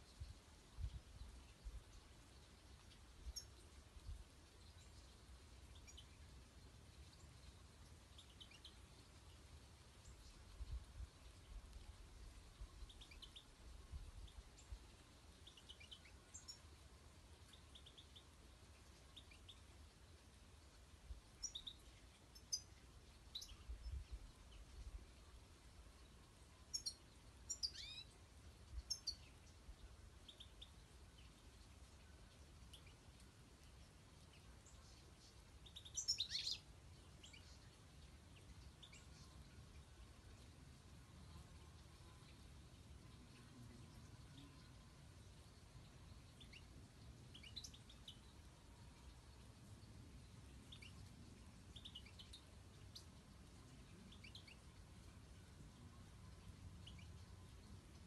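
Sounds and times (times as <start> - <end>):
finches chirping and twittering: 2.3 - 3.7, 12.6 - 13.5, 14.1 - 16.7, 17.4 - 19.7, 21.4 - 24.9, 26.6 - 29.6, 30.2 - 40.5, 41.1 - 49.4, 50.2 - 58.0.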